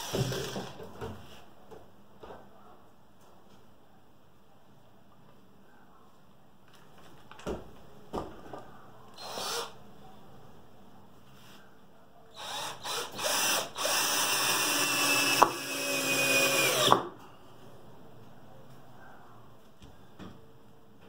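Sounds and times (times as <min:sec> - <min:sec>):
cordless drill driving screw: 0:00.0 - 0:00.8, 0:09.2 - 0:09.8, 0:12.4 - 0:17.0.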